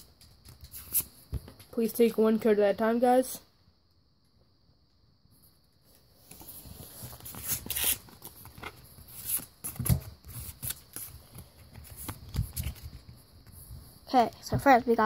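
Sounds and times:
trading cards rustling: 0.1 - 1.7, 6.2 - 13.2.

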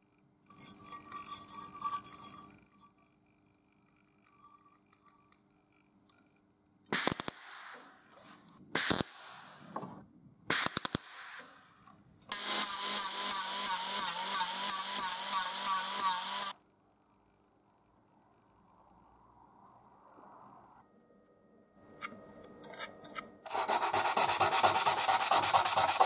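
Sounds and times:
die grinder whine: 12.3 - 16.6.

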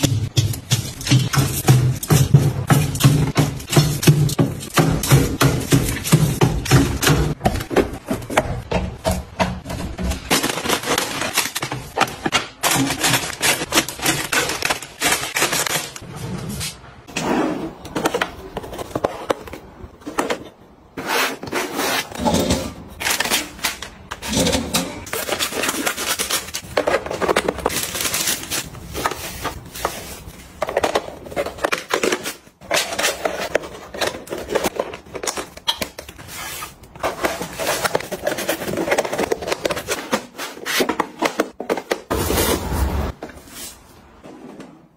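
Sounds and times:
cardboard and plastic wrap rustling: 9.6 - 16.8, 17.9 - 44.6.

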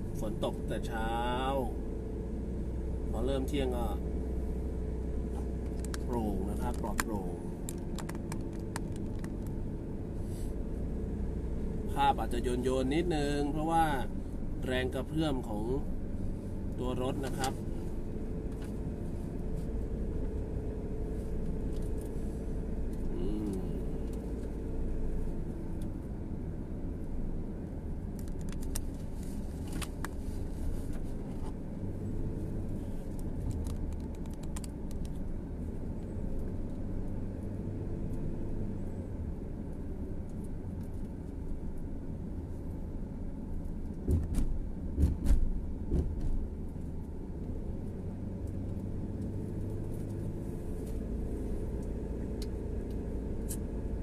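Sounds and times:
car engine and road rumble: 0.0 - 54.0.

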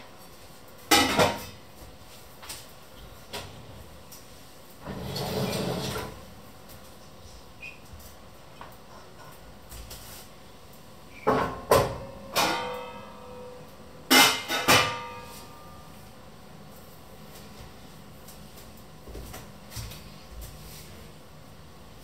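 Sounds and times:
metal cookware clanking: 11.3 - 13.4, 14.1 - 15.3.

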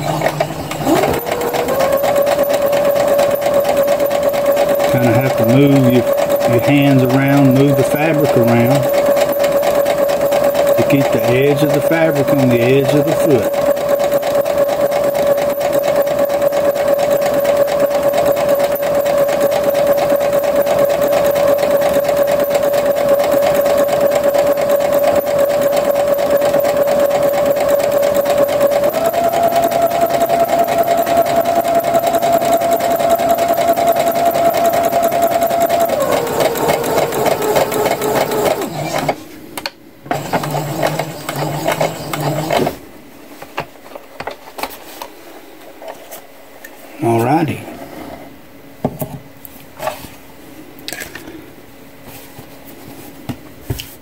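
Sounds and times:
sewing machine running: 0.0 - 39.2, 40.1 - 42.8.

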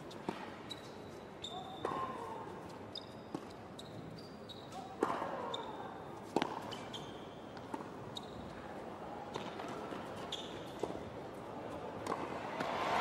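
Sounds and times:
tennis shoes squeaking: 0.0 - 8.7, 9.3 - 11.0
racket striking tennis ball: 12.0 - 13.0.

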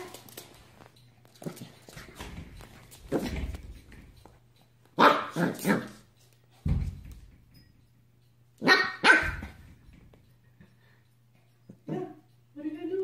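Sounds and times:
puppy play barks: 5.0 - 6.1, 8.6 - 9.6.

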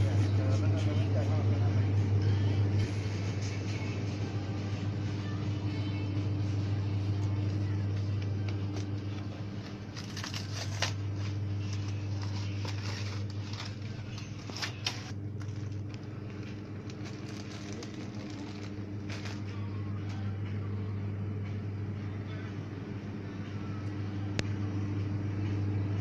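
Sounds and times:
refrigerator electrical hum: 0.0 - 26.0.

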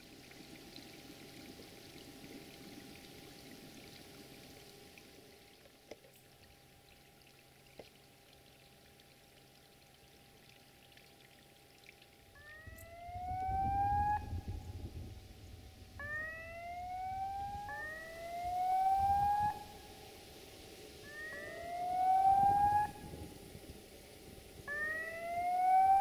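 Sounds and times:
low rumble: 12.4 - 18.4
siren-like rising tone: 12.4 - 20.2, 21.0 - 23.5, 24.6 - 26.0.

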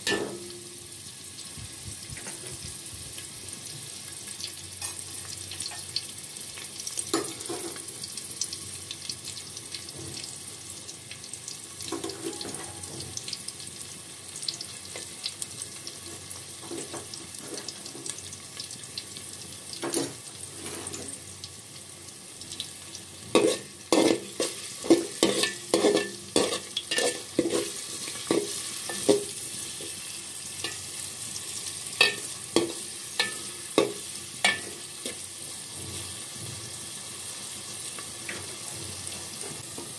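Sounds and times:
onions sizzling in hot oil: 0.0 - 39.9
spoon knocking and scraping pot: 23.4 - 29.4, 32.0 - 35.2.

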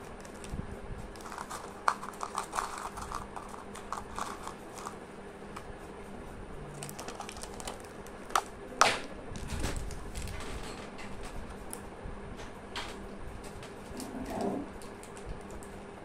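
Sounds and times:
plastic cup and foil crinkling: 0.0 - 5.0, 6.7 - 10.7.

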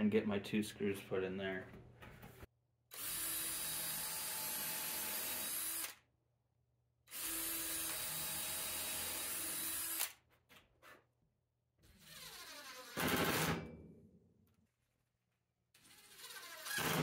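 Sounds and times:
cordless drill boring into wood: 2.9 - 6.0, 7.1 - 10.2, 11.9 - 13.4, 15.8 - 17.0.

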